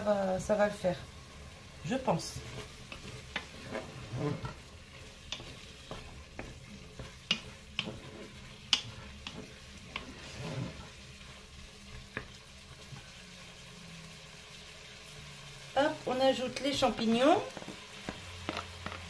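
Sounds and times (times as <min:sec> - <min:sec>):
meat sizzling: 0:00.0 - 0:19.0
spatula scraping a pot: 0:01.8 - 0:13.0.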